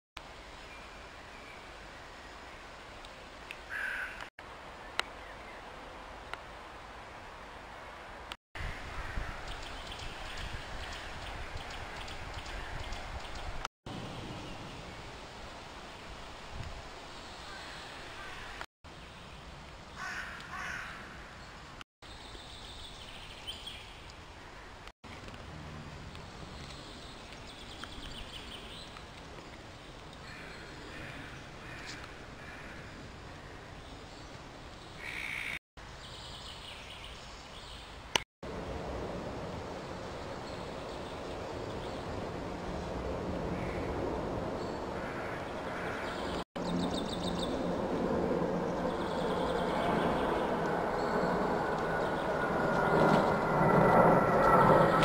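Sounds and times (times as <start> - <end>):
small birds singing: 9.4 - 13.6, 21.4 - 24.1, 33.4 - 38.0, 44.6 - 47.7
outdoor background rumble: 24.5 - 30.0, 38.1 - 55.0.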